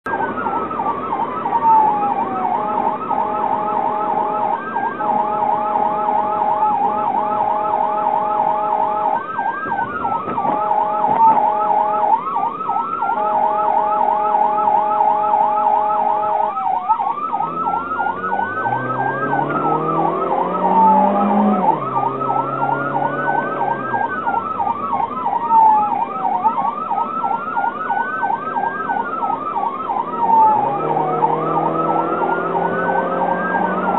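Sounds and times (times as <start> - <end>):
emergency siren yelp and wail: 0.0 - 33.9
engine revving: 17.2 - 24.6, 30.2 - 33.9.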